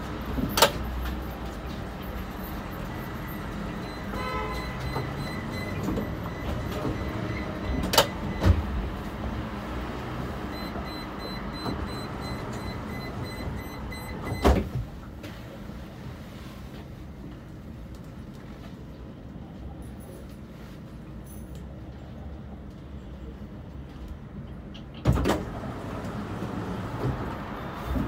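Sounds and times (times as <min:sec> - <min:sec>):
passing traffic: 0:00.0 - 0:16.0, 0:22.0 - 0:28.0
tram hum: 0:00.0 - 0:28.0.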